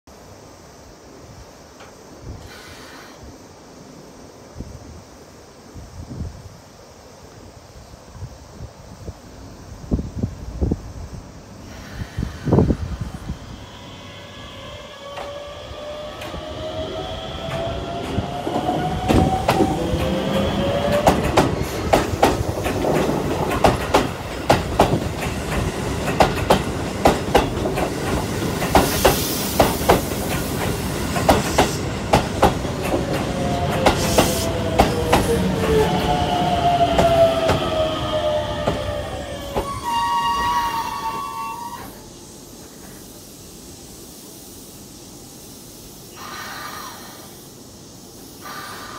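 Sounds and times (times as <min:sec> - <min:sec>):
electric train motor whine: 0:12.3 - 0:22.9, 0:32.7 - 0:42.0
wheels clicking over rail joints: 0:17.4 - 0:35.3.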